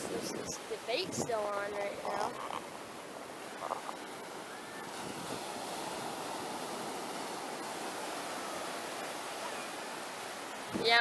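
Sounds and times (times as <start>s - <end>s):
ocean surf breaking: 0.0s - 11.0s.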